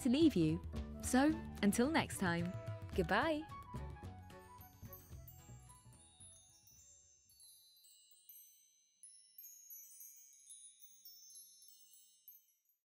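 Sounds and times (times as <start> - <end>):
background music: 0.0 - 6.8
high chimes tinkling: 4.8 - 12.8.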